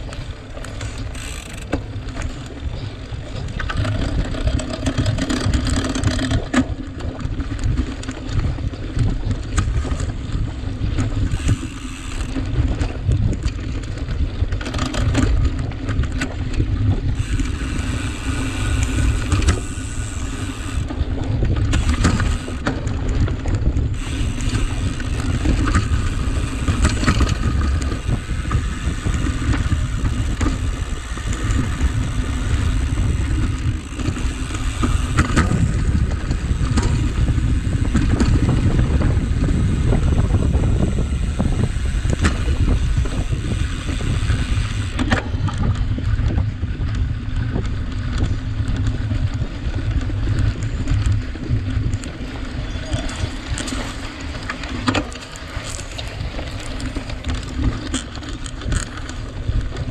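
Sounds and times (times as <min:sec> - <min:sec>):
wind buffeting microphone: 0:00.0 - 0:59.9
bike rattling knocks: 0:00.1 - 0:10.2, 0:10.8 - 0:52.1.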